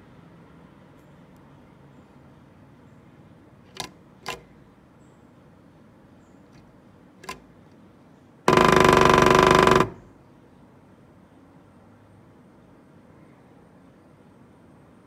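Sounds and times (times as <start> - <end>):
woodpecker drumming on wood: 7.2 - 7.4, 8.5 - 10.1.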